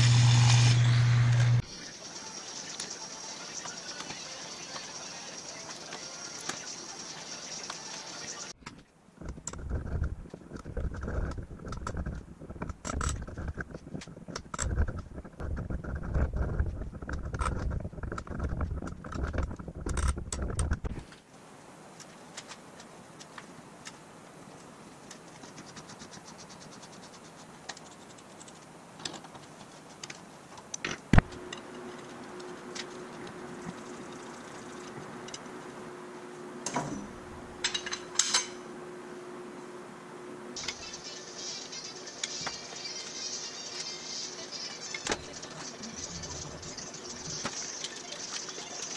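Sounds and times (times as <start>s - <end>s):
steady hum: 0.0s - 8.6s, 30.9s - 47.6s
metal clinks and scrapes: 37.6s - 38.7s.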